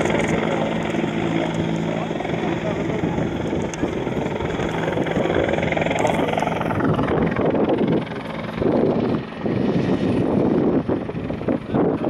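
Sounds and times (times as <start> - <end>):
helicopter hovering: 0.0 - 12.0.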